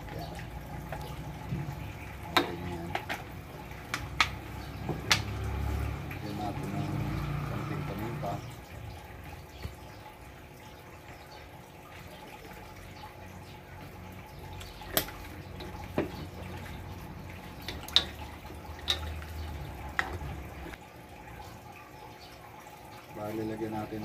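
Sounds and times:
liquid simmering in wok: 0:13.8 - 0:22.6.

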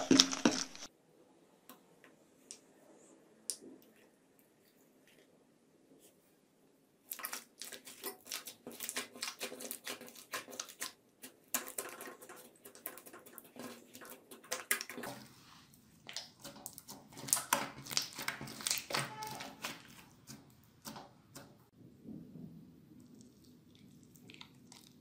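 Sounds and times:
hands squishing slime: 0:07.0 - 0:21.7.

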